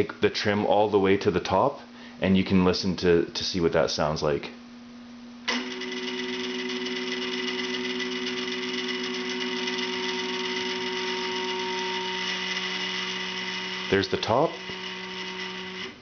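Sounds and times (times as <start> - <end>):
stepper motor whining: 5.5 - 16.0.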